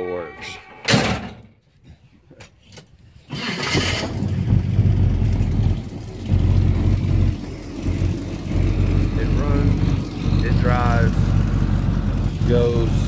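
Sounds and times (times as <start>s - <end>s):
car engine cranking and idling: 3.3s - 13.0s.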